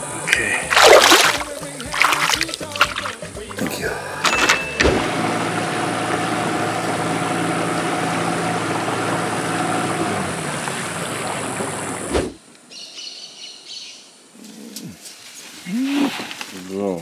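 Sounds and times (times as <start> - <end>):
boat motor running: 0.0 - 12.4.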